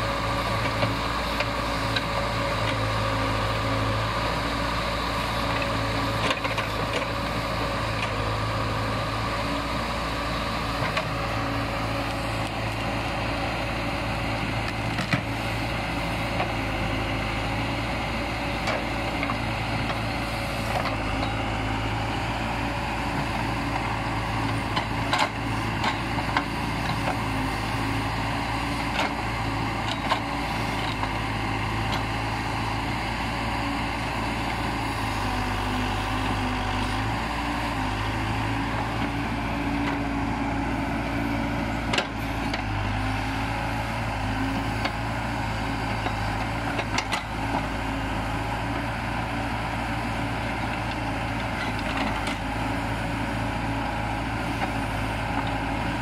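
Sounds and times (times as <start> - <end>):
backhoe diesel engine running: 0.0 - 56.0.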